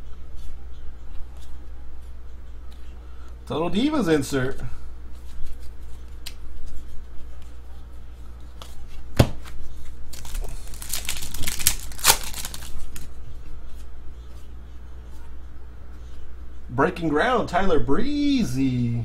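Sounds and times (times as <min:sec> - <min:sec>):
card pack wrapper tearing and crinkling: 0:10.1 - 0:13.1.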